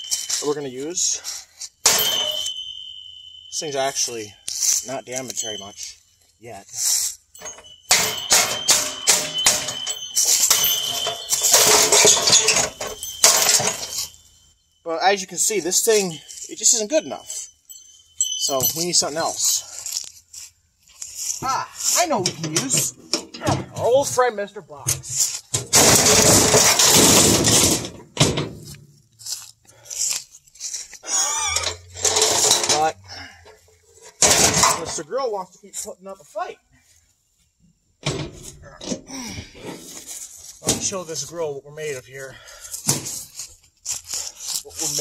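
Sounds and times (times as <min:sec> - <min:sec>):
thin high metallic ring: 0:00.0 - 0:23.0, 0:30.1 - 0:35.1
metal tool beating a grill: 0:01.8 - 0:02.8, 0:07.4 - 0:14.1
box crashing into metal grill: 0:25.6 - 0:28.6, 0:34.2 - 0:35.0.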